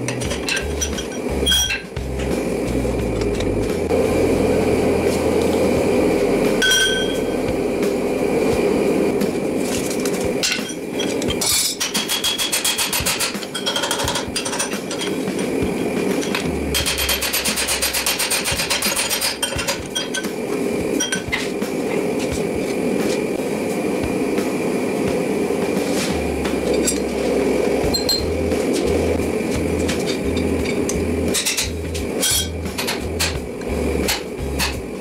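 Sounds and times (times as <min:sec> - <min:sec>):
tools clinking on iron: 0:00.0 - 0:01.9, 0:06.6 - 0:07.3, 0:10.4 - 0:20.4, 0:21.0 - 0:21.4, 0:27.9 - 0:28.3, 0:29.9 - 0:33.4
forge burner roaring: 0:00.0 - 0:35.0
hammer striking metal on anvil: 0:06.6 - 0:07.5, 0:10.4 - 0:20.4.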